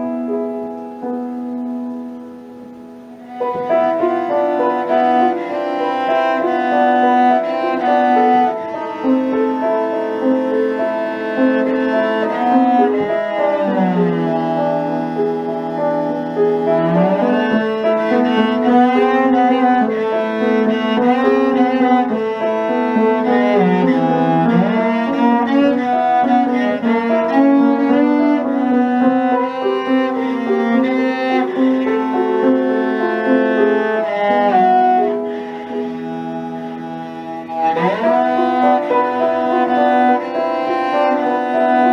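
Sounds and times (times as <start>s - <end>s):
cello playing: 0.0s - 41.9s
piano accompaniment: 0.0s - 41.9s.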